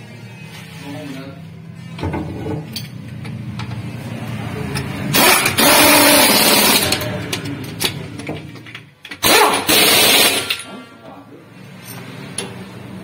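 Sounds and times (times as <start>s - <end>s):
impact wrench hammering: 4.8s - 10.7s.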